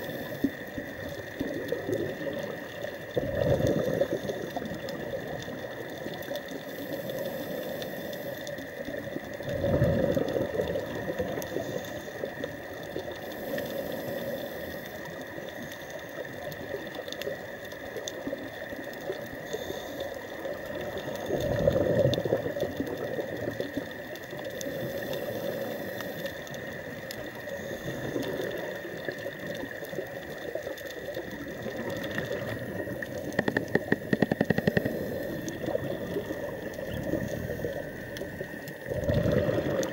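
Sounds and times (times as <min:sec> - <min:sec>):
scuba bubbles gurgling: 0:00.0 - 0:39.9
sharp clicks: 0:33.2 - 0:35.6.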